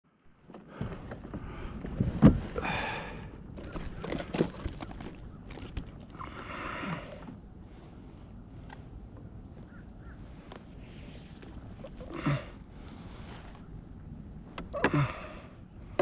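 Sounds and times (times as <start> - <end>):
fishing gear rasping: 3.6 - 6.2.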